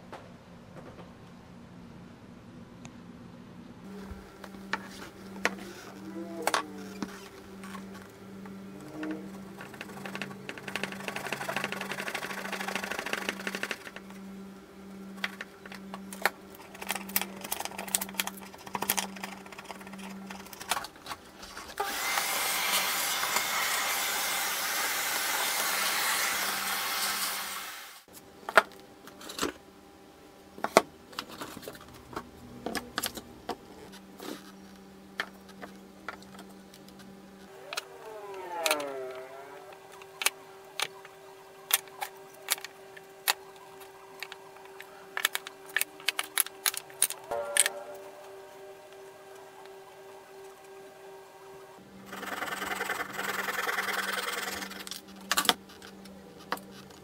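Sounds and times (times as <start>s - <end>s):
vacuum cleaner running: 21.4s - 28.1s, 37.4s - 41.1s.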